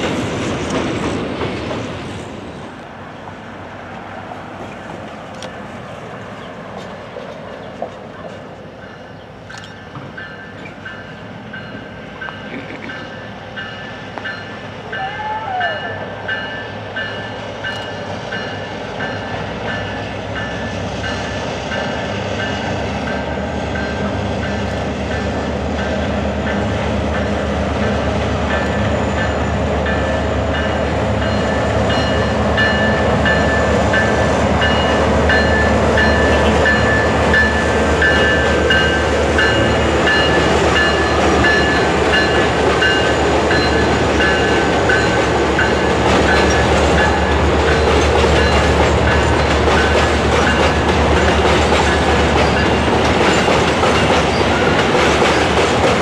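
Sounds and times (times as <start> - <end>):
diesel locomotive running: 0.0 - 56.0
train wheels clattering: 16.4 - 56.0.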